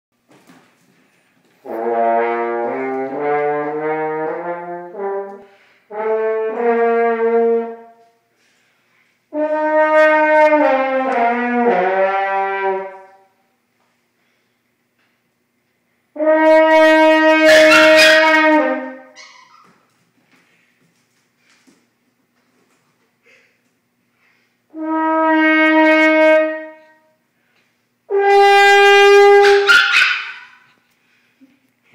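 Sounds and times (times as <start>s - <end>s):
french horn playing held notes: 1.5s - 8.2s, 9.3s - 13.4s, 16.1s - 19.2s, 24.7s - 27.0s, 28.1s - 29.7s
french horn long notes: 1.6s - 8.1s.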